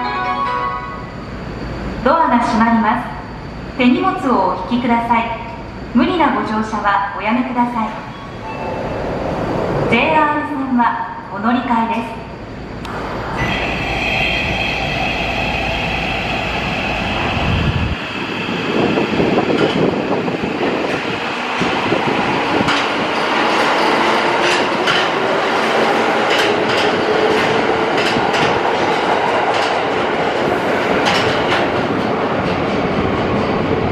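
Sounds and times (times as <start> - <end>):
train motor whine rising: 12.8 - 19.4.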